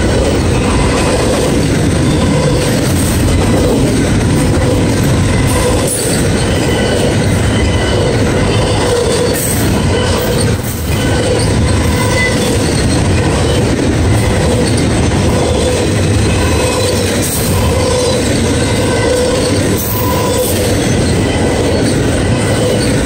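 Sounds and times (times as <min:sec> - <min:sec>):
steel train wheels rumbling on rail: 0:00.0 - 0:23.0.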